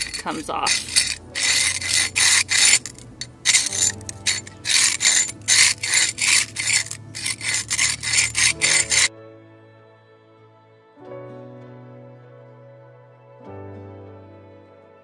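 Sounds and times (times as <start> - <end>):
metal scraper scraping wall: 0.0 - 9.1.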